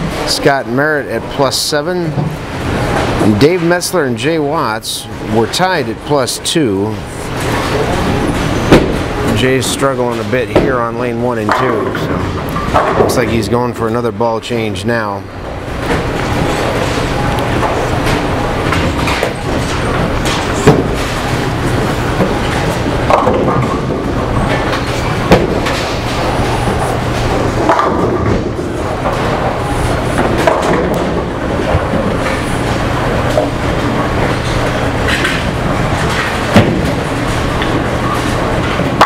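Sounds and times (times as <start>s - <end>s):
bowling balls rolling: 0.0s - 39.0s
bowling pins crashing: 7.4s - 10.9s, 11.5s - 13.4s, 15.5s - 39.0s.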